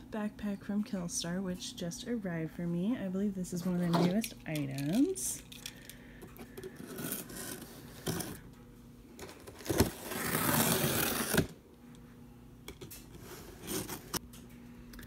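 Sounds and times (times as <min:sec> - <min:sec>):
box cutter slicing packing tape: 0:09.6 - 0:11.6.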